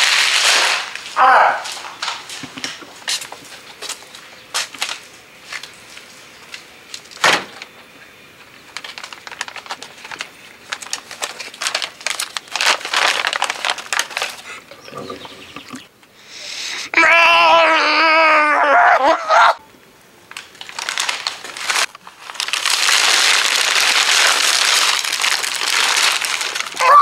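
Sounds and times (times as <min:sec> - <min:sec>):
packaging crinkling: 0:00.0 - 0:07.7, 0:08.4 - 0:15.8, 0:20.3 - 0:27.0.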